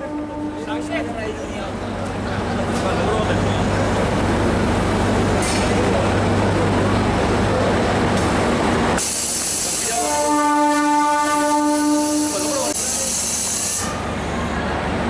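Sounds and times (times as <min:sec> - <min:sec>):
train horn blast: 0:00.0 - 0:01.0, 0:09.9 - 0:12.8
loud air hiss: 0:09.0 - 0:10.3, 0:11.8 - 0:14.0.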